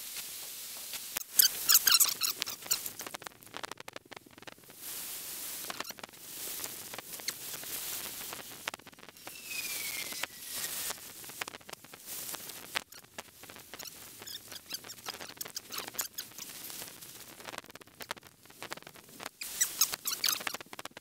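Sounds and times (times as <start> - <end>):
thin falling whistle: 9.2 - 11.0.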